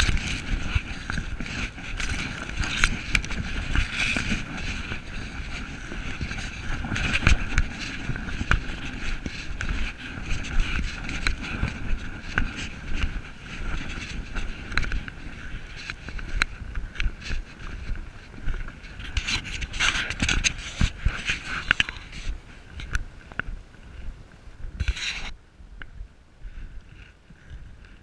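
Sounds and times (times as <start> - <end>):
camera housing clicks and rubbing: 0.0 - 17.4, 19.0 - 23.0
wind buffeting microphone: 0.0 - 28.0.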